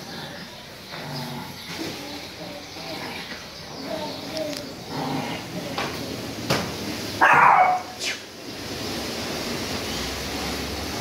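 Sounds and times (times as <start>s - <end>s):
dog barking: 7.2s - 8.0s.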